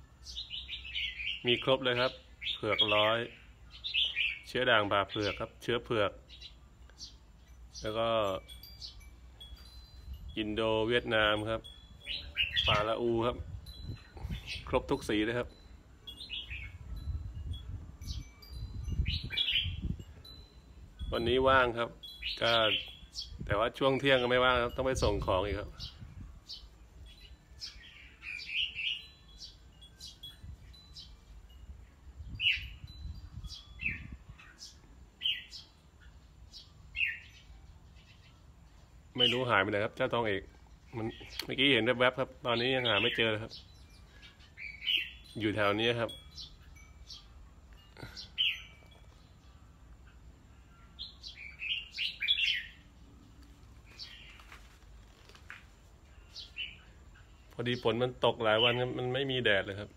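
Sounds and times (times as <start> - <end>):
bulbuls chirpy whistled calls: 0.0 - 55.4, 56.0 - 59.9
bulbul calls: 0.2 - 9.1, 11.8 - 14.9, 40.7 - 47.3, 50.0 - 53.0.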